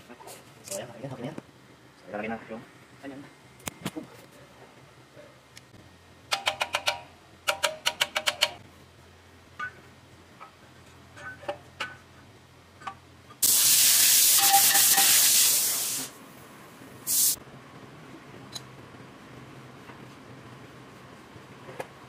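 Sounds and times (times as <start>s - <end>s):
tools clicking on metal: 6.3s - 8.6s
pressurised spray jet hissing: 13.4s - 16.2s, 17.1s - 17.4s.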